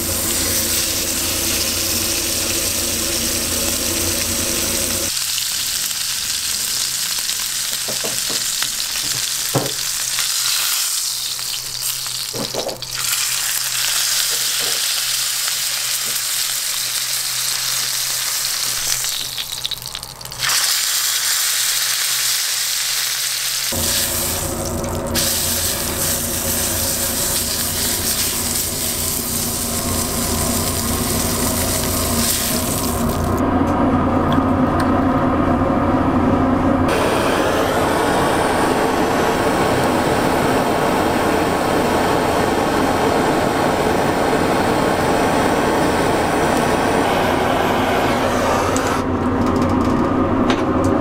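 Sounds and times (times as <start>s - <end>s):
steak sizzling in a pan: 0.0s - 33.4s
low roar of fire: 23.7s - 50.8s.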